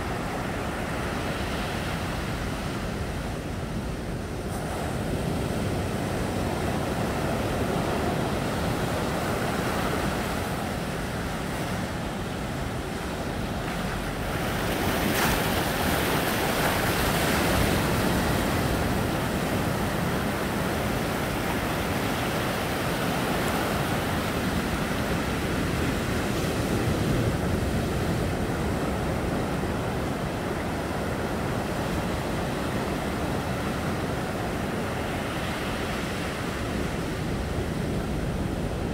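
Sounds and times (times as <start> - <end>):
ocean surf on shore: 0.0 - 38.9.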